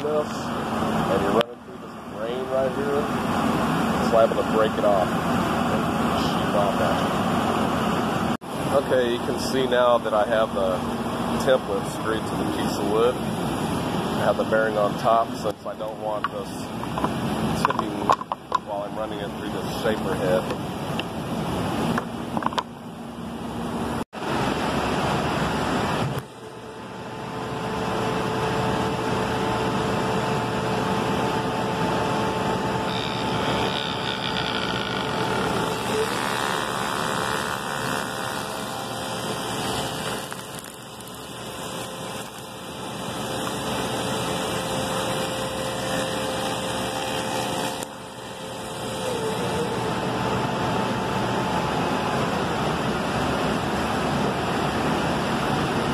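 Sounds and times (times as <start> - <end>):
spindle shaper whining: 25.8 - 53.4.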